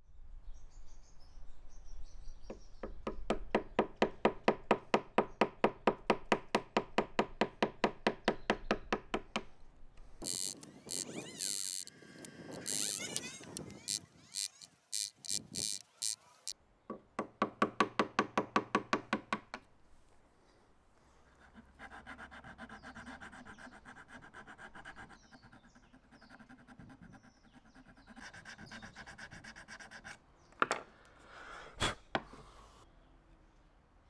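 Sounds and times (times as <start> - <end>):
chisel scraping wood: 10.2 - 16.6.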